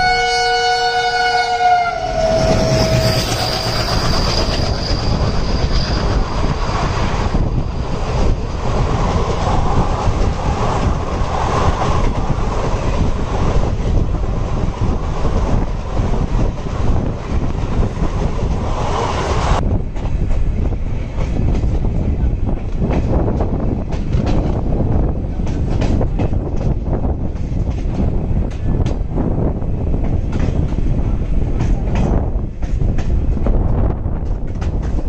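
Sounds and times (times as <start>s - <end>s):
locomotive horn: 0.0s - 3.8s
train rumble and wheel clatter: 0.0s - 35.0s
high squeal: 1.9s - 8.6s.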